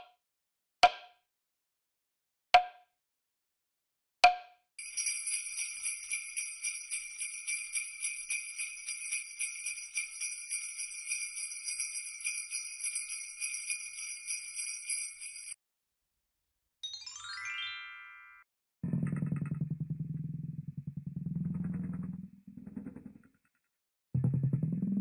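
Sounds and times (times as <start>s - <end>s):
jingle bells shaken: 4.8s - 15.6s.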